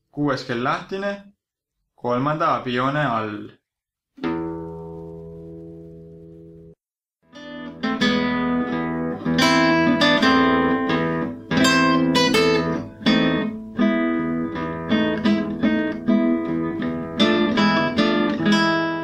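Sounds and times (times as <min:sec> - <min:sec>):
acoustic guitar strumming chords: 0:04.2 - 0:19.0.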